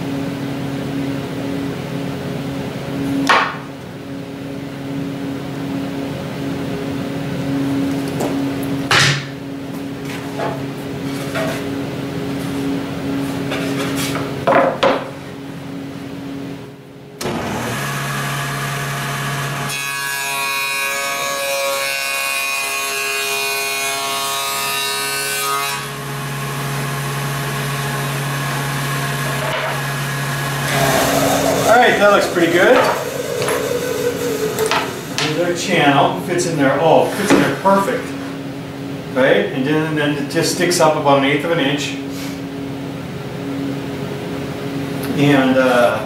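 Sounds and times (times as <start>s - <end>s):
table saw running: 25.5s - 36.7s
saw blade cutting plywood: 29.2s - 35.6s.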